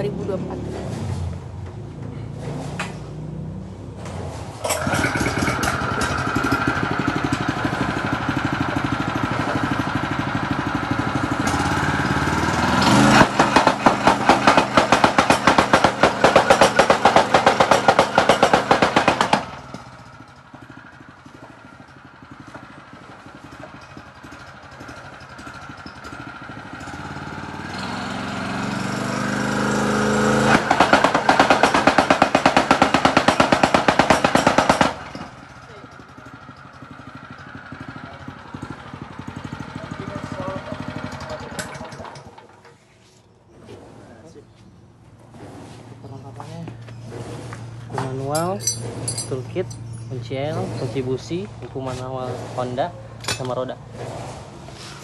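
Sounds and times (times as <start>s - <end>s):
tamping rammer engine running: 4.6s - 42.9s, 45.2s - 55.0s
rammer foot pounding rapidly: 13.2s - 19.6s, 30.5s - 35.1s.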